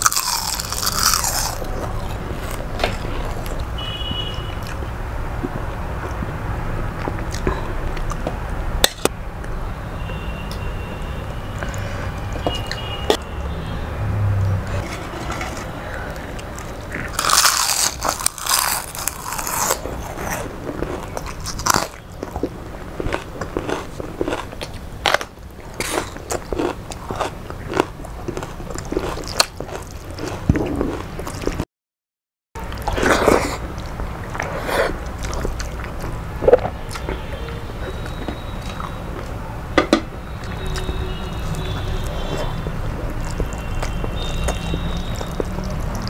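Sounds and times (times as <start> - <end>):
person eating crunchy food: 0.0 - 3.7, 14.7 - 31.6, 32.8 - 37.2, 40.4 - 46.0.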